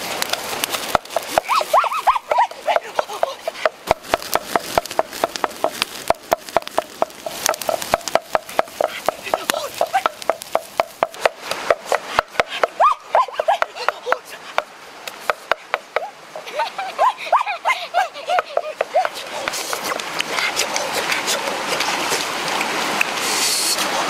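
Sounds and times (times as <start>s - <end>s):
wood fire crackling and popping: 0.0s - 12.7s, 19.0s - 21.2s.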